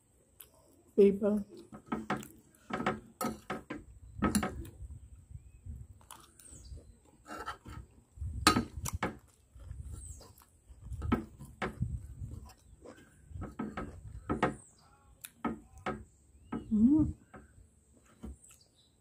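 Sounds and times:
chewing: 0:06.0 - 0:08.1, 0:08.8 - 0:13.9.

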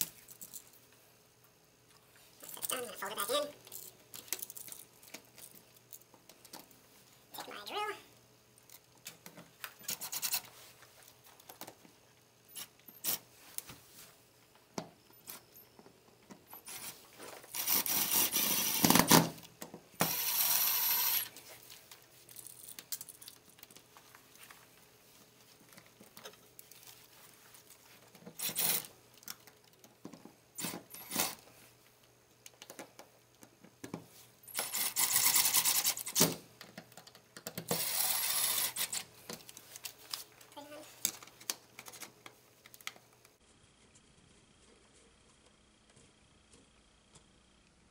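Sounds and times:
cordless drill driving screws: 0:17.5 - 0:19.1, 0:20.0 - 0:21.3, 0:34.6 - 0:36.2, 0:37.7 - 0:39.0.

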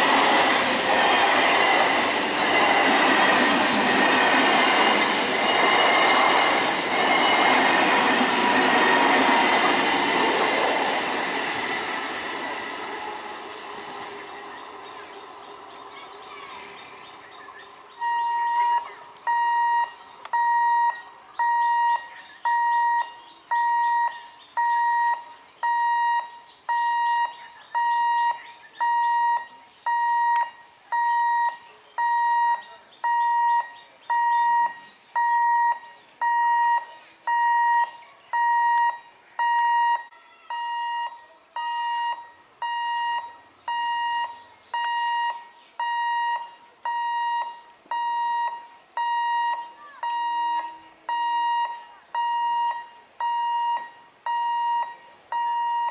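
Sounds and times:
level crossing alarm beeping: 0:00.0 - 0:13.6, 0:18.0 - 0:55.9
electric train rumbling past: 0:00.0 - 0:19.9.

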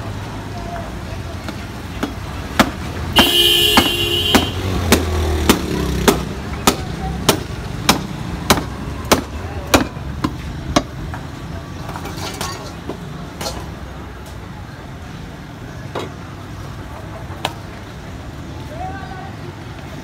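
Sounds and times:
low street traffic: 0:00.0 - 0:20.0
cleaver chopping through ribs: 0:02.0 - 0:02.8, 0:03.8 - 0:10.9
vehicle horn: 0:03.2 - 0:04.8.

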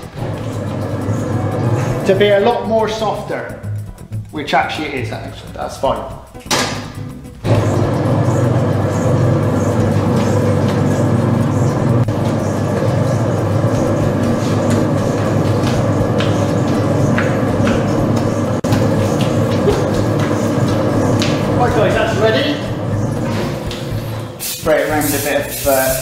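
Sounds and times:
dough mixer motor humming: 0:00.0 - 0:02.4, 0:07.4 - 0:23.7.

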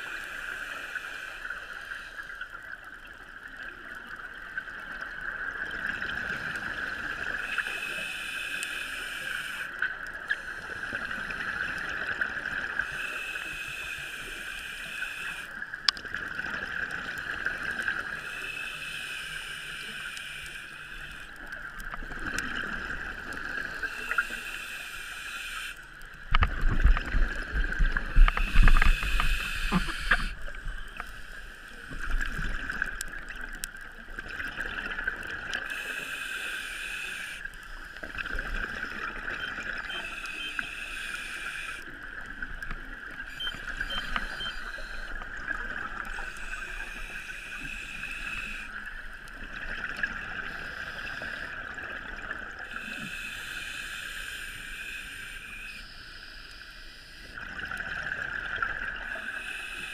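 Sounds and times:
diver's regulator breathing: 0:07.4 - 0:15.6, 0:17.2 - 0:33.0, 0:35.6 - 0:38.1, 0:39.4 - 0:41.9, 0:46.0 - 0:48.9, 0:52.6 - 0:57.4, 0:59.1 - 0:59.9.

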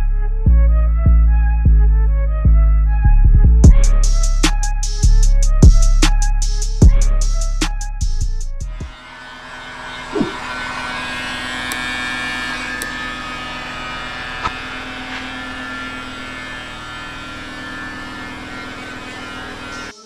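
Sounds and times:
electric motor hum: 0:08.8 - 0:20.0.

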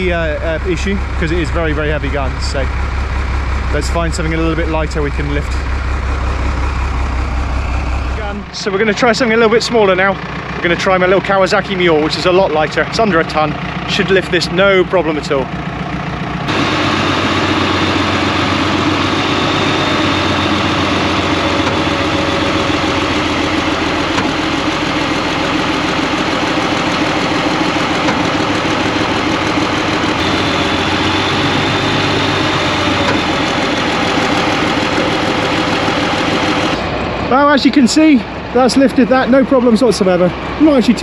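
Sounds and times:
diesel engine running: 0:00.0 - 0:41.0
faint hydraulic whine: 0:16.4 - 0:41.0.

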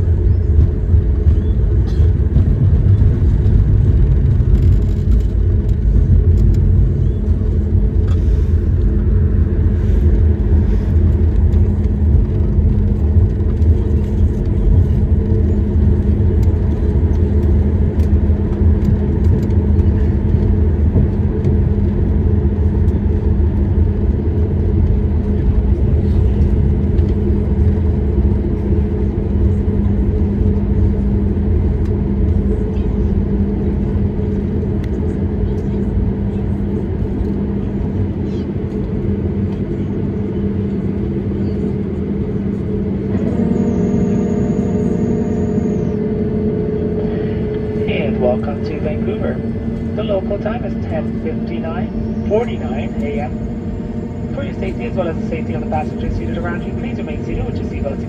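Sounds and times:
jet engines and wheels rumbling: 0:00.0 - 0:58.0
cabin hum: 0:37.0 - 0:58.0.

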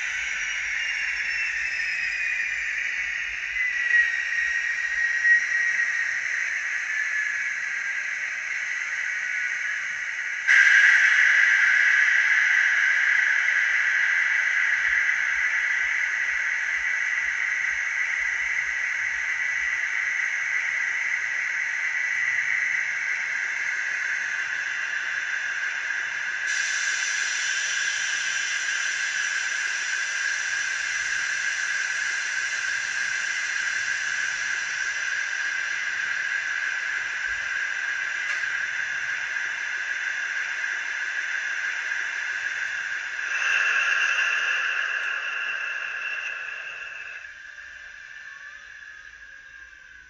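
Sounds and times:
high-pitched engine screaming from speaker: 0:00.0 - 0:06.9, 0:43.1 - 0:50.0.

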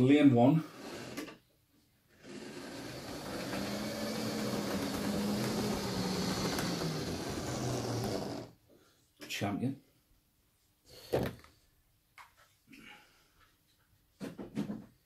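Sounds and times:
model train motor hum: 0:02.2 - 0:08.5.

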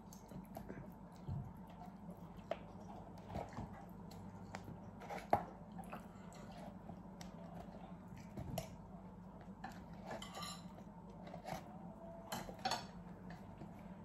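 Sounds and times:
low steady hum: 0:00.0 - 0:14.0
cutlery clinking on plates: 0:10.0 - 0:10.8.

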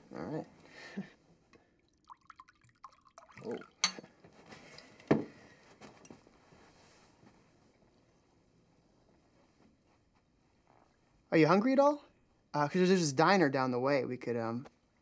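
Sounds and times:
liquor gurgling into a cup: 0:01.8 - 0:03.8
bottle clinking on cup: 0:03.4 - 0:04.1
dull knock: 0:05.1 - 0:05.3.

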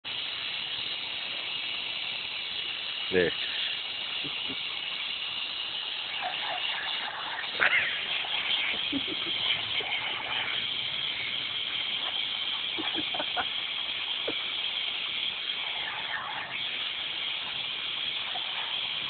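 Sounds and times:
water jet hissing: 0:00.0 - 0:19.0
dog biting water jet: 0:04.0 - 0:19.0.

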